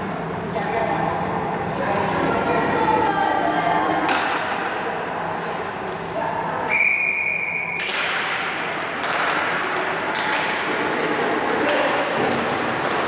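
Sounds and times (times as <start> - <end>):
voices and rink noise: 0.0 - 13.0
referee's whistle blast: 6.7 - 7.9.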